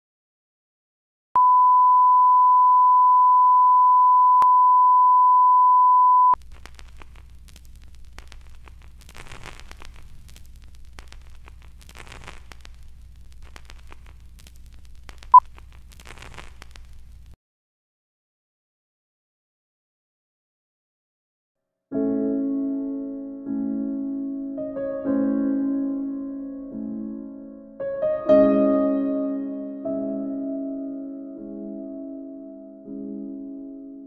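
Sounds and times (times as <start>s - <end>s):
short sync beep: 1.4s - 6.4s
low hum and faint crackle: 6.4s - 17.4s.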